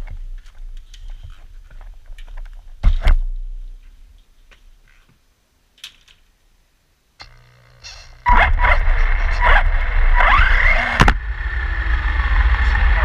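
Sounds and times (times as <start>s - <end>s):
loud thumps: 7.2s - 11.3s
low rumble: 7.2s - 13.0s.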